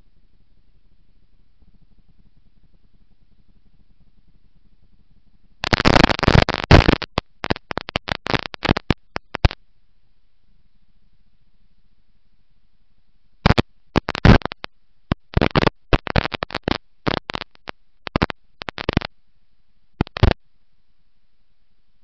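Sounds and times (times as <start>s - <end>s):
faint low rumble: 0.0s - 22.0s
harsh scratching and crackling: 5.6s - 9.6s, 13.4s - 19.1s, 20.0s - 20.4s.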